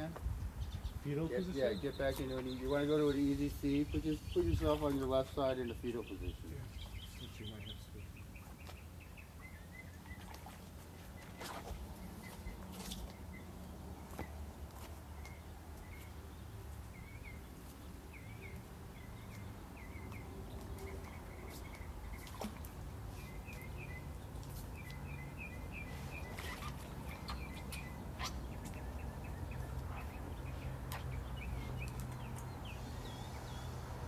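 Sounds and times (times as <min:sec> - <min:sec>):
small bird chirping: 0:15.2 - 0:33.8.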